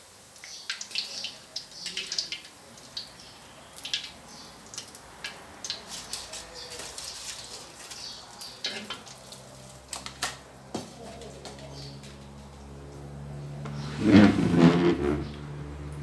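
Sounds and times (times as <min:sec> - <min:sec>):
frying oil sizzling: 0:00.0 - 0:14.9
metal spatula scraping a wok: 0:13.7 - 0:15.4.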